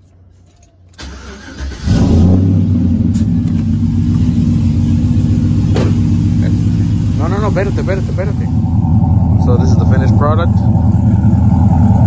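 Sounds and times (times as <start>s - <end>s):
engine starter cranking: 0.9s - 3.8s
truck engine idling: 1.0s - 12.0s.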